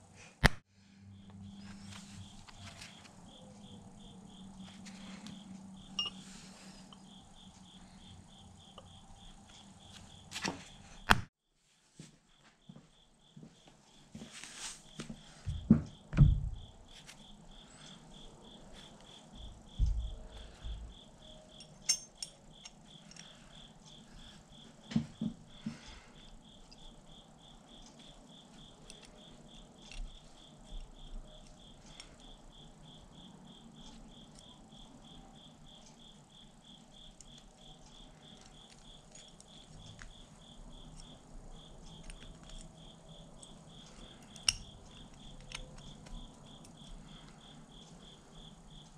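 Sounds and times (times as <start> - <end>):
cricket chirping: 0.8 - 11.2, 12.3 - 48.9
dull thumps: 15.4 - 16.8
light clicks of parts handled: 28.9 - 32.3.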